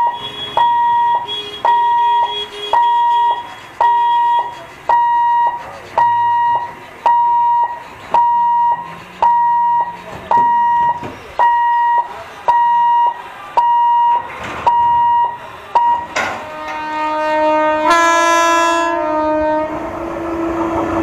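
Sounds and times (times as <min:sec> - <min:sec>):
level crossing warning beeps: 0:00.0 - 0:16.2.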